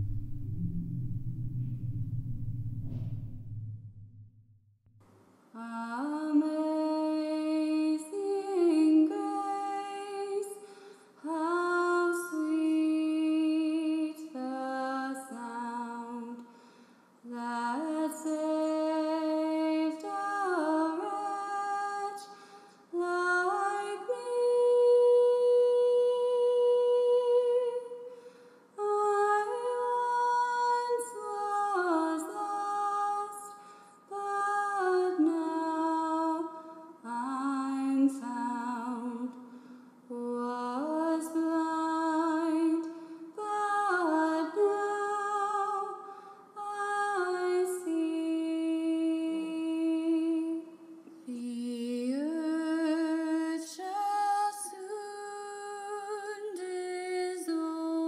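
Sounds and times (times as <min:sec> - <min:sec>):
woman singing wordlessly: 0:05.6 - 0:10.6, 0:11.2 - 0:16.5, 0:17.3 - 0:22.3, 0:22.9 - 0:28.0, 0:28.8 - 0:39.4, 0:40.1 - 0:46.0, 0:46.6 - 0:58.0.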